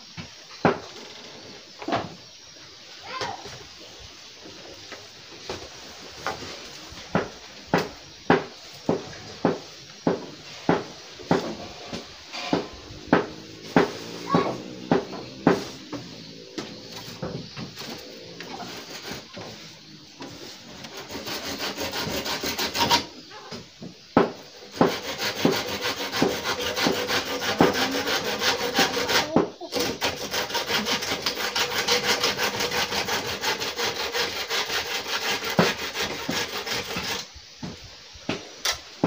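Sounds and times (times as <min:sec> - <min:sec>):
hand saw cutting wood: 0:07.1 - 0:23.2, 0:24.2 - 0:37.3.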